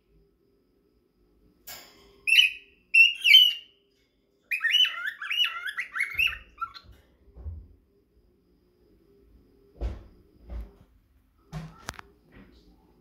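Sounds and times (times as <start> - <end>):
cockatiels chirping and whistling: 2.3 - 3.7, 4.5 - 6.9.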